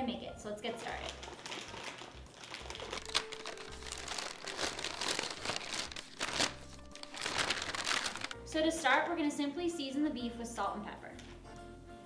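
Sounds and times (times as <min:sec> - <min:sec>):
paper wrapping crinkling: 0:00.8 - 0:08.4.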